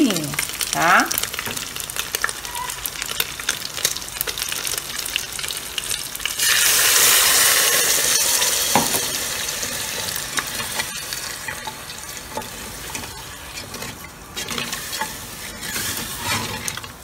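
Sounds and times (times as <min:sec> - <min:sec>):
water sizzling in hot pot: 0:00.0 - 0:17.0
wooden spoon scraping pot: 0:08.2 - 0:17.0.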